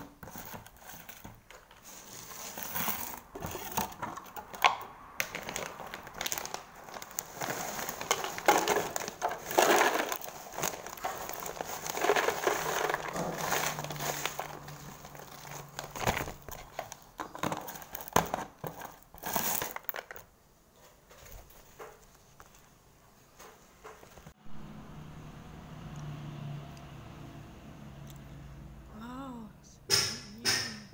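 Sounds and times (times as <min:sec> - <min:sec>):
chips tumbling into plastic jar: 0:00.2 - 0:20.3
plastic packet crinkling: 0:00.2 - 0:20.3.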